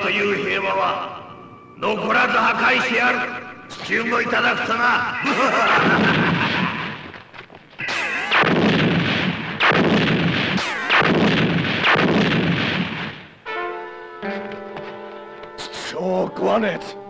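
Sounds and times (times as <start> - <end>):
explosions: 5.5 - 7.2, 7.8 - 13.4.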